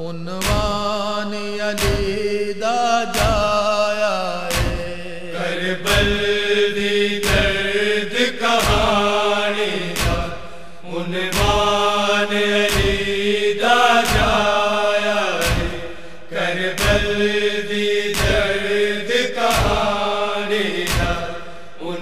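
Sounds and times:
wordless chanting voices: 0:00.0 - 0:22.0
deep beat: 0:00.4 - 0:01.1, 0:01.7 - 0:03.8, 0:04.5 - 0:05.2, 0:07.2 - 0:21.7.

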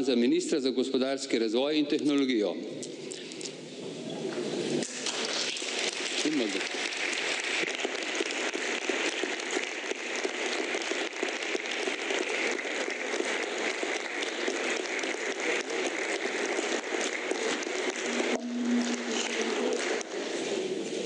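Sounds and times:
crowd applause: 0:04.7 - 0:21.0.

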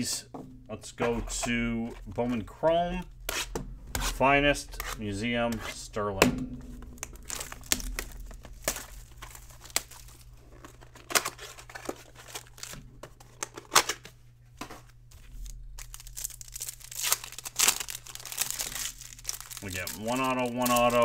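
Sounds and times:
plastic and foil wrapping crinkling: 0:06.7 - 0:14.0, 0:14.8 - 0:21.0.

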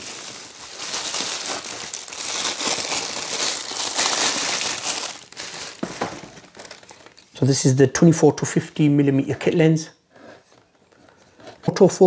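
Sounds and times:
packaging crinkling and rustling: 0:00.0 - 0:07.4.

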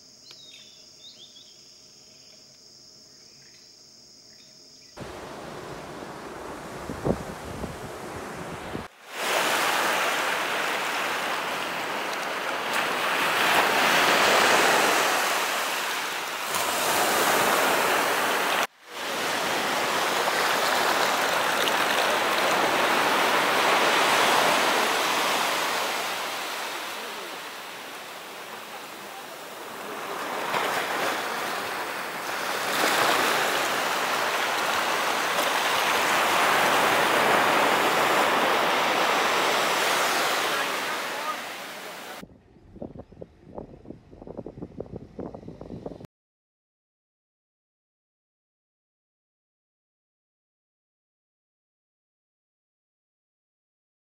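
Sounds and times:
sea surf breaking on beach: 0:05.0 - 0:42.2.

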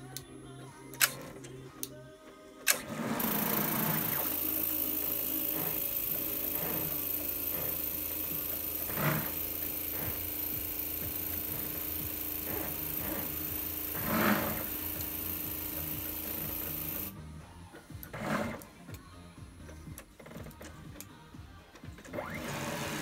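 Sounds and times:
stepper motors whirring: 0:02.7 - 0:17.2
steady machine hum: 0:02.9 - 0:18.2.

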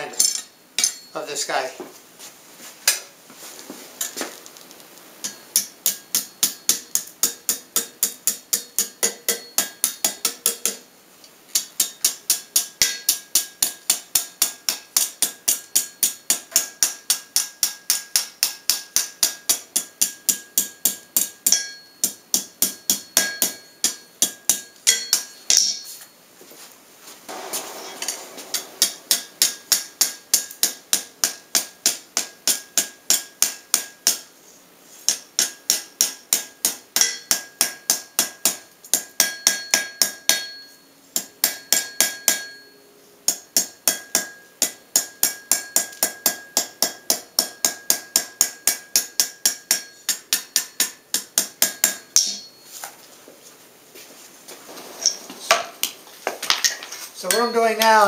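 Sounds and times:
hammer striking metal on anvil: 0:00.2 - 0:01.2, 0:05.2 - 0:10.8, 0:11.6 - 0:26.1, 0:27.3 - 0:34.3, 0:35.1 - 0:52.6, 0:57.2 - 0:58.0.

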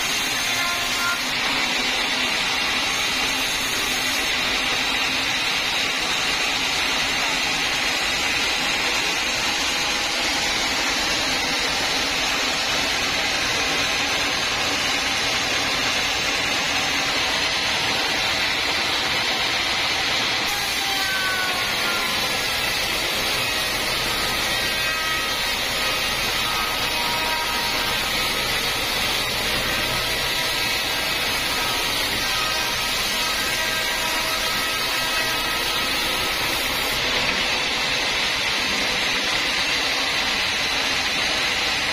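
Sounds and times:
band saw cutting log: 0:00.0 - 0:41.9.

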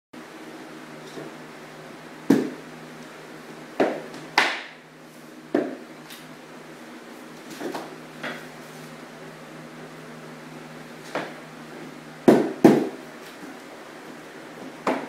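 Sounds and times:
rubber mallet knocking on wood planks: 0:02.3 - 0:02.6, 0:05.5 - 0:05.8, 0:12.3 - 0:13.0.

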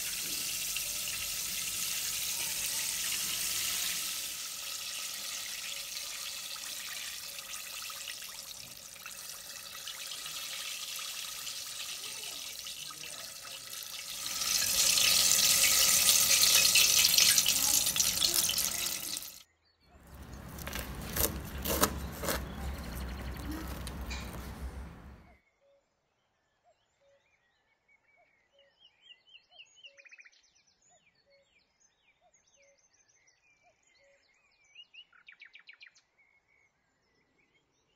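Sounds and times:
oil sizzling deep-frying: 0:00.0 - 0:19.4, 0:20.0 - 0:25.3.

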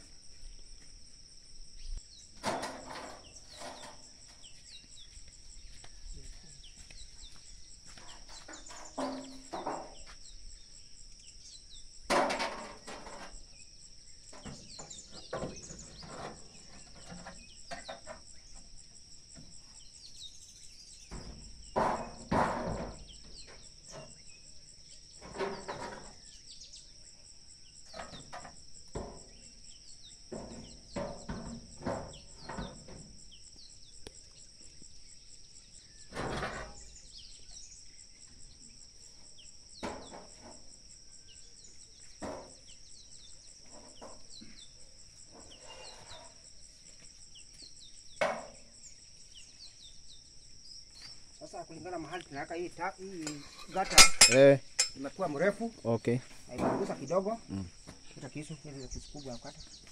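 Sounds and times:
insects chirring: 0:00.0 - 0:59.9
knocks and thumps of work: 0:02.3 - 0:10.4, 0:12.0 - 0:13.6, 0:14.2 - 0:19.8, 0:21.0 - 0:26.4, 0:27.8 - 0:33.6, 0:36.0 - 0:37.2, 0:39.8 - 0:48.9, 0:53.2 - 0:58.3.

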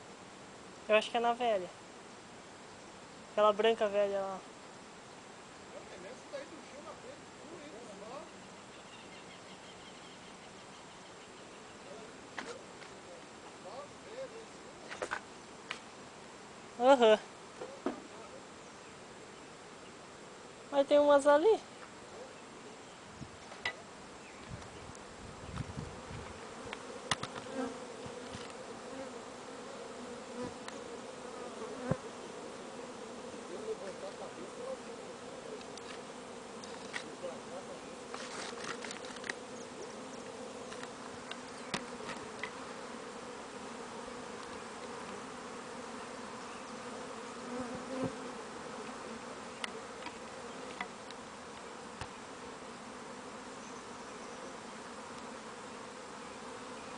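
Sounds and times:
swarm of bees buzzing: 0:23.8 - 0:56.9.

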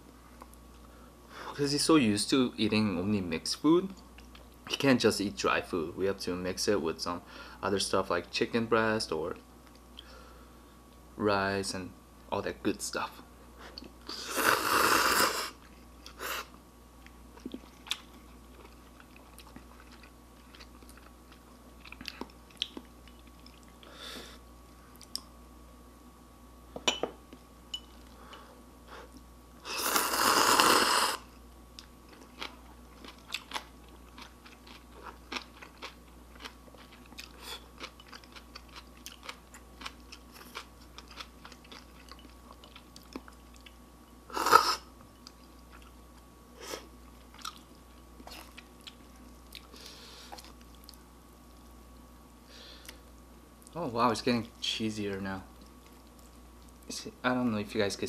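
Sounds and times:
person slurping noodles: 0:14.1 - 0:15.6, 0:29.6 - 0:31.2, 0:44.3 - 0:44.8
quiet chewing: 0:17.0 - 0:23.9, 0:31.7 - 0:43.8, 0:44.5 - 0:51.8, 0:55.5 - 0:56.9.

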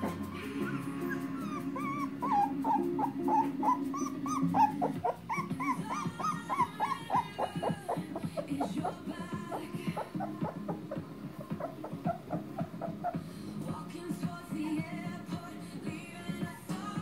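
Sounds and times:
puppy whining and crying: 0:00.0 - 0:13.3.

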